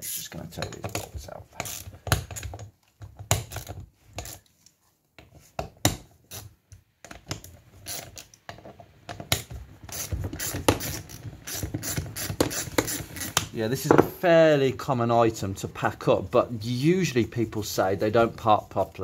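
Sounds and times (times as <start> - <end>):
metallic clicks knocks and scrapes: 0.0 - 14.1.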